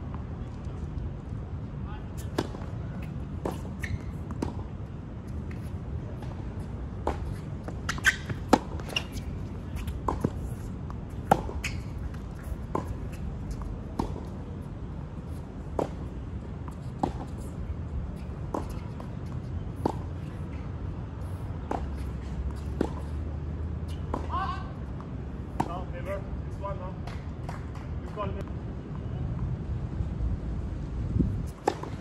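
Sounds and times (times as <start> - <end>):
low outdoor hum: 0.0 - 32.0
tennis ball bouncing: 2.2 - 14.4, 15.1 - 17.6, 18.2 - 23.2, 23.9 - 25.9, 31.5 - 32.0
racket striking tennis ball: 6.2 - 14.4, 16.7 - 17.5, 18.2 - 20.6, 23.9 - 24.5, 31.6 - 32.0.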